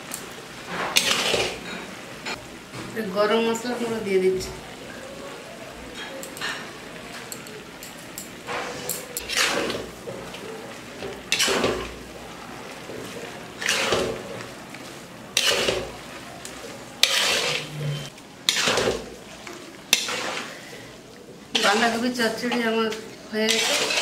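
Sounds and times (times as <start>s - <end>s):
low sizzle: 0.0s - 24.0s
spatula scraping cooking pan: 0.6s - 2.4s, 8.4s - 24.0s.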